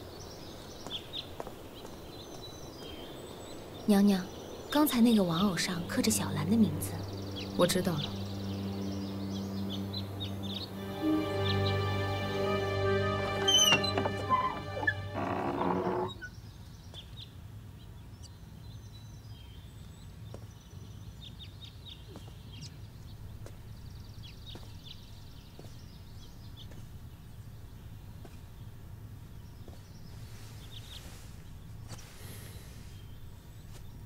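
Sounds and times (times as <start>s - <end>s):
bird chirps: 2.1s - 16.4s
steady low hum: 4.6s - 10.9s
background music: 4.8s - 16.2s.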